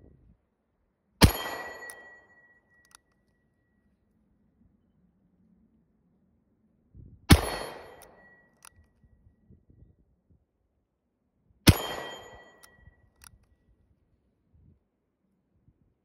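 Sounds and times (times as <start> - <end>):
revolver gunshots with echo: 1.2 - 2.2, 7.3 - 8.4, 11.7 - 12.7.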